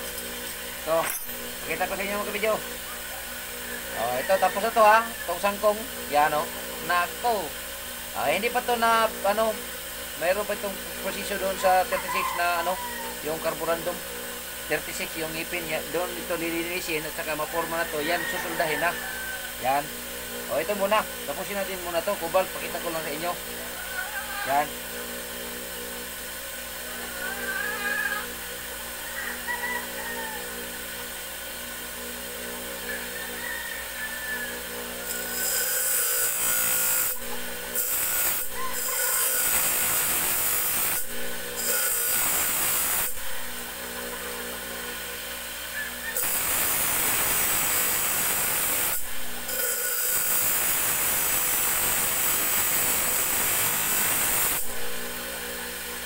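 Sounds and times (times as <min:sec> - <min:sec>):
harsh metal grinding: 0:00.0 - 0:24.9, 0:34.5 - 0:44.4, 0:46.1 - 0:55.7
grinding wheel humming: 0:00.0 - 0:56.0.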